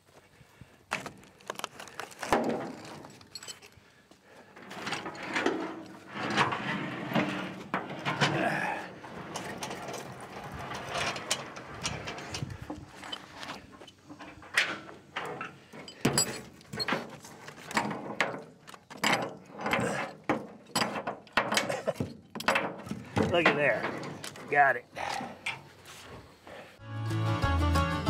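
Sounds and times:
metal cable and hook clinking: 0:02.7 - 0:03.8, 0:09.4 - 0:17.1.

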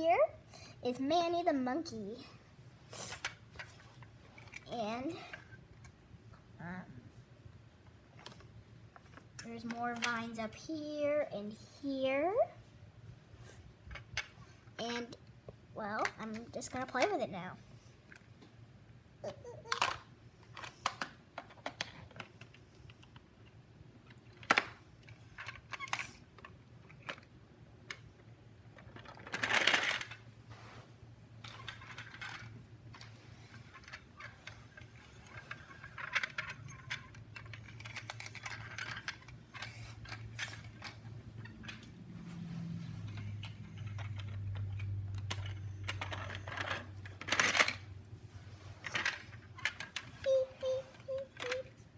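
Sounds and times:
plastic toy parts clicking: 0:19.6 - 0:23.2, 0:28.8 - 0:30.2, 0:35.2 - 0:41.9, 0:43.2 - 0:47.8, 0:48.8 - 0:51.7.

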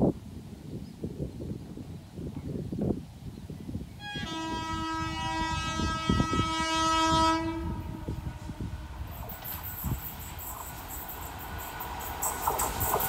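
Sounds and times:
locomotive air horn blast: 0:04.0 - 0:09.2.

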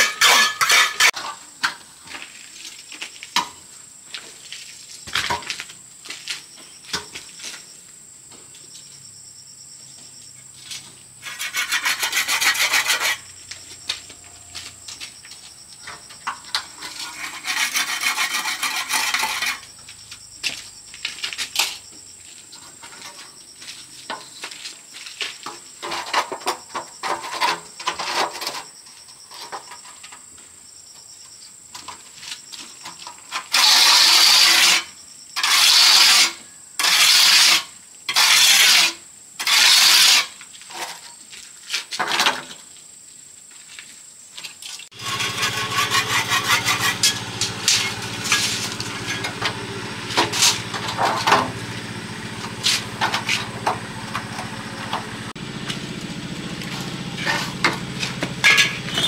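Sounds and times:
small engine running: 0:44.9 - 0:59.0.

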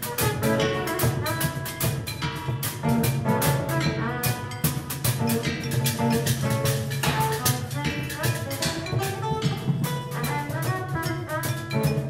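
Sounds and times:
junk percussion rhythm: 0:00.0 - 0:12.0.

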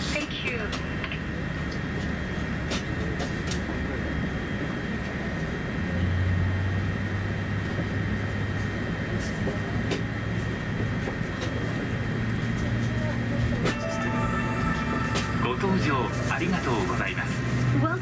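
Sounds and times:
aircraft systems hum and hiss: 0:00.0 - 0:18.0
low engine drone: 0:00.8 - 0:18.0.

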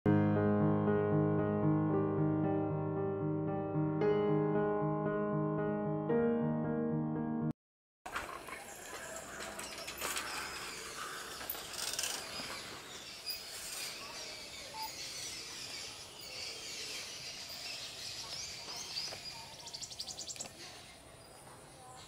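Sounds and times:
birds chirping: 0:08.4 - 0:22.0.

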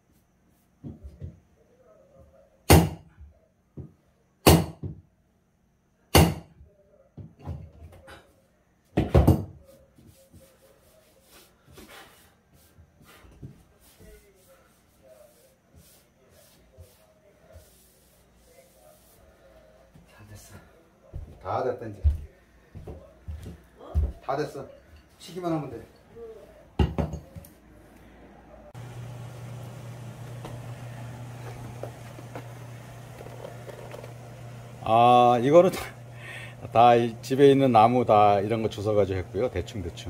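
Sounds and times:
hammer striking wood: 0:02.7 - 0:03.0, 0:04.4 - 0:05.0, 0:06.1 - 0:06.5.

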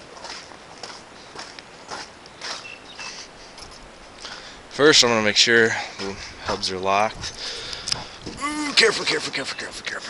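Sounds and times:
footsteps on icy snow and mud: 0:00.0 - 0:04.8.

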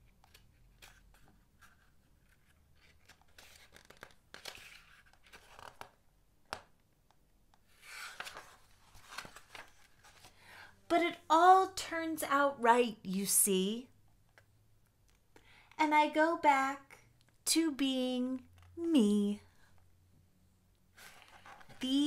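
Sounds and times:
paper pages rustling: 0:00.1 - 0:06.7, 0:07.6 - 0:10.4, 0:20.9 - 0:22.0.

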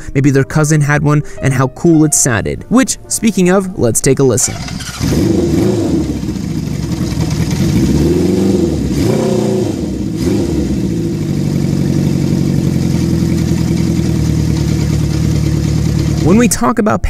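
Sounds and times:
motorcycle engine revving and idling: 0:04.5 - 0:16.4.

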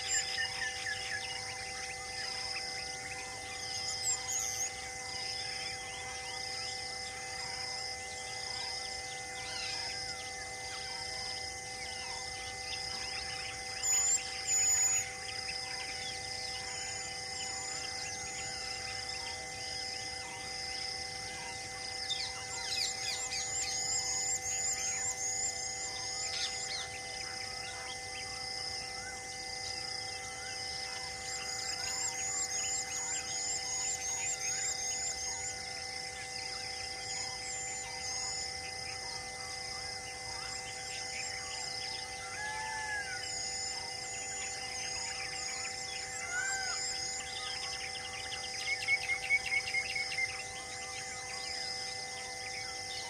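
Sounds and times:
high pulsing chirp: 0:00.0 - 0:53.0
steady low hum: 0:00.0 - 0:53.0
birds calling: 0:40.3 - 0:52.3.

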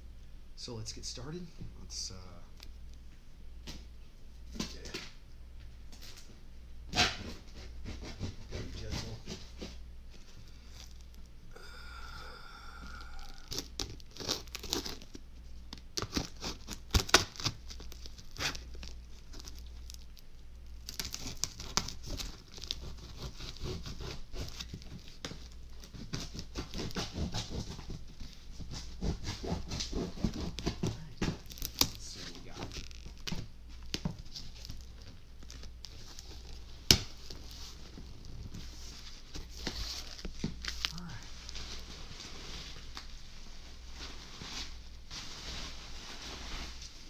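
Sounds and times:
packing tape slit and peeled: 0:13.0 - 0:43.2
cardboard and paper crinkling: 0:13.4 - 0:47.0.

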